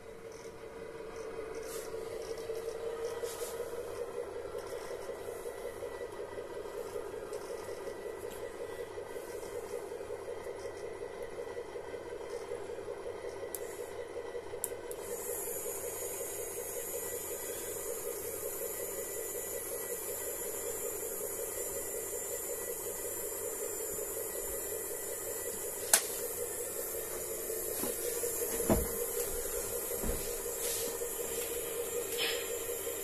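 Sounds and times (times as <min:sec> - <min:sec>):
small electric motor whining: 0:01.2 - 0:11.4, 0:14.9 - 0:33.0
knock: 0:28.6 - 0:29.0.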